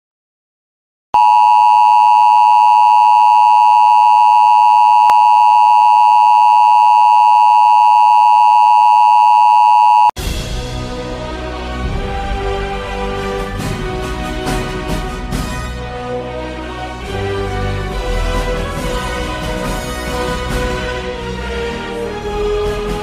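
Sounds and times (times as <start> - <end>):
electronic test tone: 1.2 - 10.2
music: 10.2 - 23.0.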